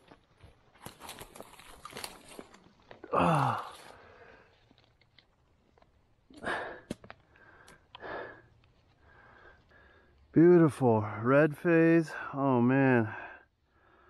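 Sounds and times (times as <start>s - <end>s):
rustles in dry leaves: 0.7s - 4.2s
man sighing oh: 3.0s - 4.0s.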